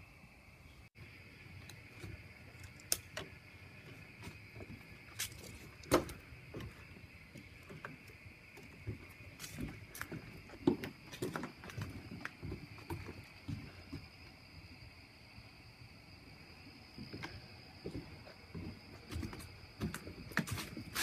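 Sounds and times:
footsteps on wooden deck: 0:01.6 - 0:14.3, 0:16.7 - 0:21.0.

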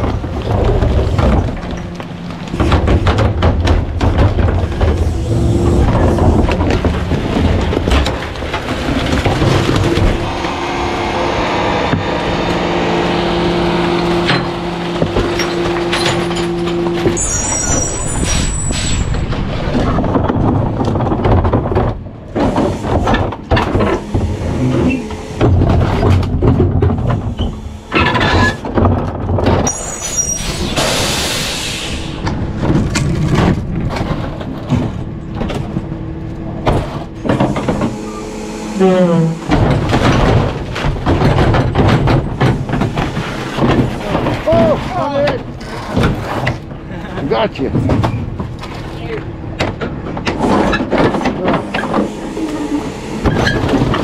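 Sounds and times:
trash knocking and crunching: 0:00.0 - 0:31.2, 0:32.1 - 0:38.1, 0:39.4 - 0:54.0
hydraulic packer drone: 0:00.0 - 0:54.0
metal squealing: 0:09.7 - 0:19.9, 0:29.6 - 0:33.3, 0:37.0 - 0:40.2, 0:50.6 - 0:54.0
air hiss: 0:30.5 - 0:32.2.

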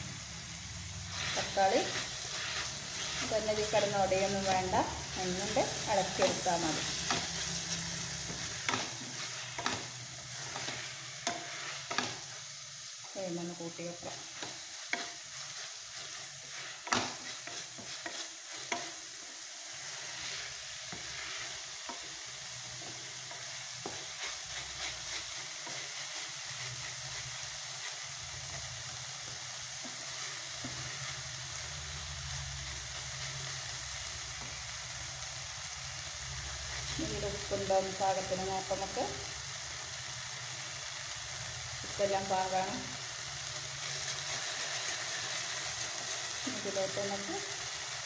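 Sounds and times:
vegetables sizzling in oil: 0:00.0 - 0:48.0
spatula scraping a pan: 0:01.1 - 0:12.6, 0:14.0 - 0:28.7.

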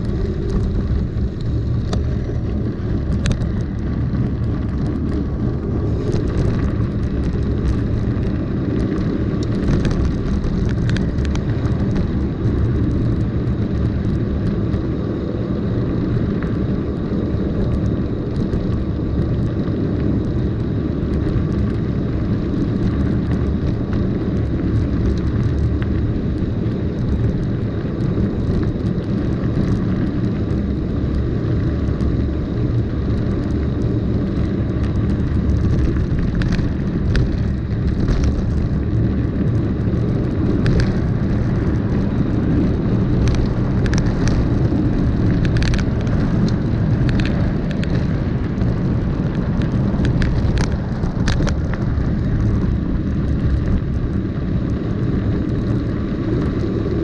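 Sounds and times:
tyres rolling on gravel: 0:00.0 - 0:16.3, 0:17.1 - 0:56.8
bike clicks and rattles: 0:00.0 - 0:57.0
wind buffeting microphone: 0:00.0 - 0:57.0.

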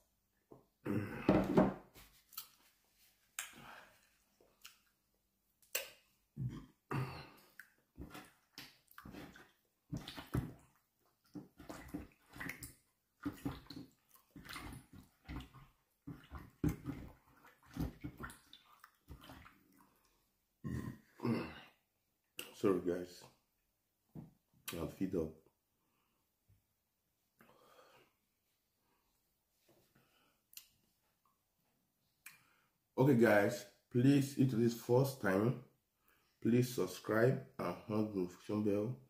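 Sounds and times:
wet mouth eating sounds: 0:04.4 - 0:05.0, 0:07.4 - 0:20.1.

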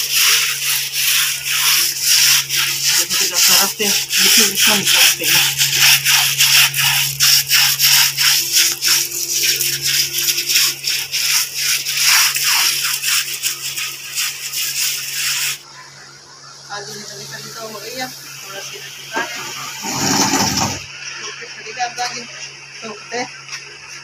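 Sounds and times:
soap scrubbing wet cord webbing: 0:00.0 - 0:15.6.

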